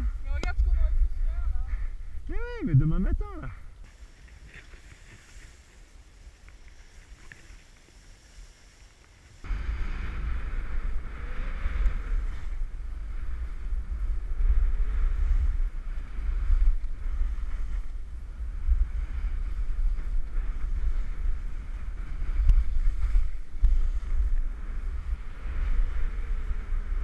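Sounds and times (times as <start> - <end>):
skis hissing over snow: 3.8 - 27.0
wind buffeting microphone: 9.4 - 27.0.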